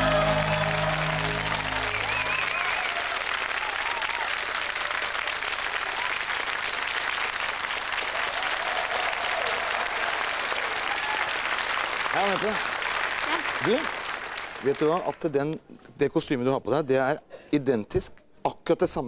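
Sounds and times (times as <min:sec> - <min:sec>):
backing music: 0:00.0 - 0:02.6
audience applauding: 0:00.0 - 0:15.3.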